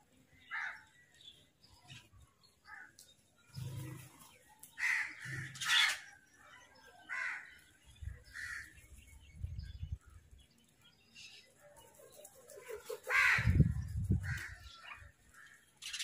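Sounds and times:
crows cawing: 0.5s - 0.9s, 4.8s - 6.1s, 7.1s - 7.6s, 8.3s - 8.7s, 13.0s - 14.6s.

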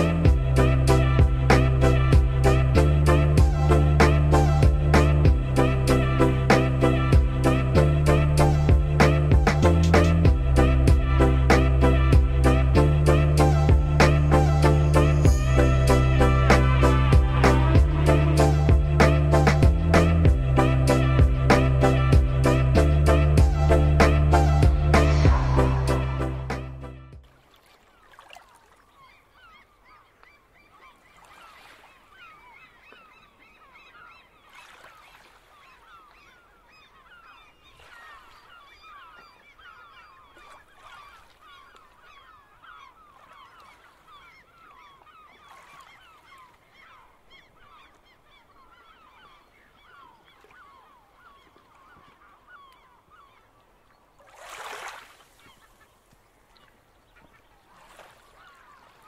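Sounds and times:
small waves washing: 27.2s - 59.0s.

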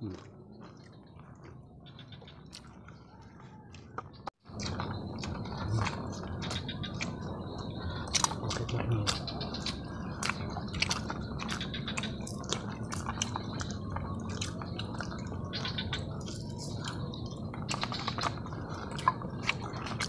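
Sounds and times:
people chewing and sucking: 0.0s - 20.0s.

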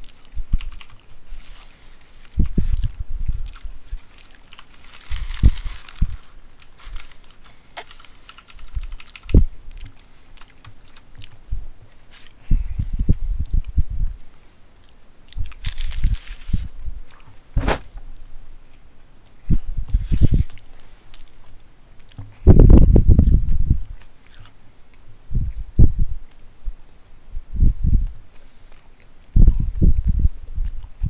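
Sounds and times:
hissy rustles: 0.0s - 14.6s, 15.4s - 18.0s, 19.5s - 21.5s
person chewing sandwich: 0.0s - 17.5s, 28.0s - 31.0s.

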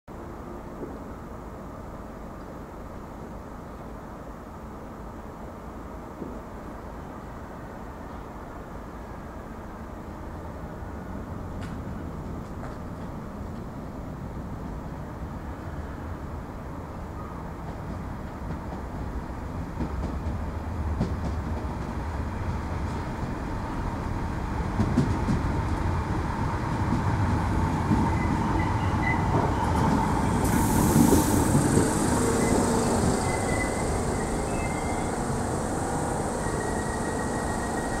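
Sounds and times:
train wheels on rails: 11.4s - 15.5s, 17.2s - 38.0s
high hiss: 30.2s - 38.0s
brake squeals: 31.3s - 38.0s.

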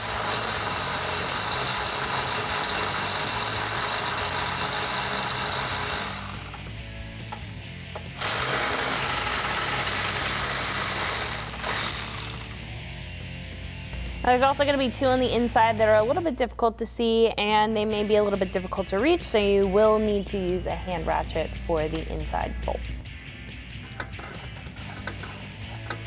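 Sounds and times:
electric ratchet spinning nuts: 0.0s - 6.8s, 8.0s - 12.7s, 23.8s - 26.0s.

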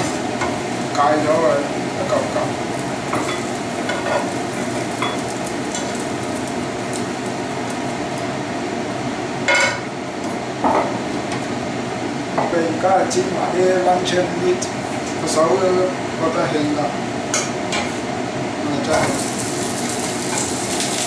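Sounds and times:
eggs sizzling in a pan: 2.5s - 8.6s, 19.0s - 21.0s.

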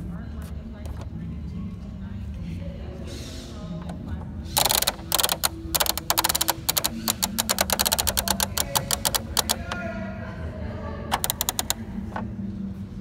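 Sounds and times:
plastic toy clicking: 4.6s - 9.8s, 11.1s - 11.8s.

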